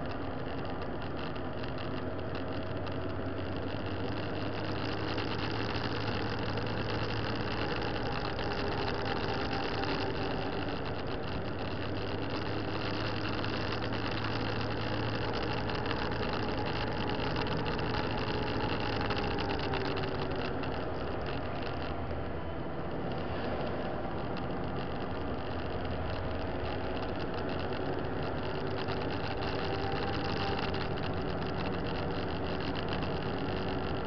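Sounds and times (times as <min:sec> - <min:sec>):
motorcycle engine running: 0:00.0 - 0:34.0
wind and road noise: 0:00.0 - 0:34.0.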